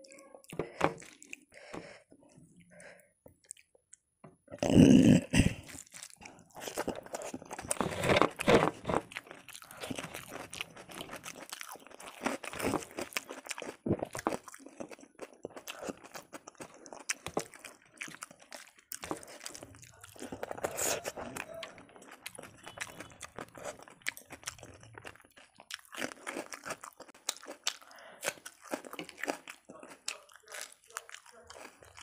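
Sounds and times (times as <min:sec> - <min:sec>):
person chewing rice: 0:00.0 - 0:32.0.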